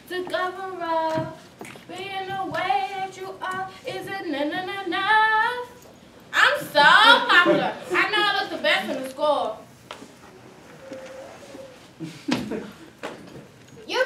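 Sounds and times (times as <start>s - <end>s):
woman singing unaccompanied: 0.0s - 5.8s.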